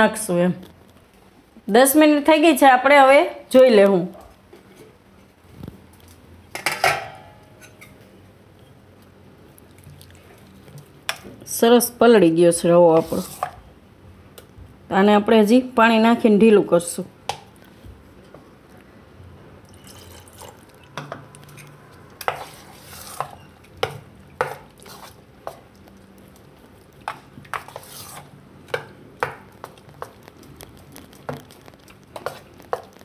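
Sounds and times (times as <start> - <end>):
spoon stirring wet batter: 12.9 - 13.6, 19.7 - 33.0.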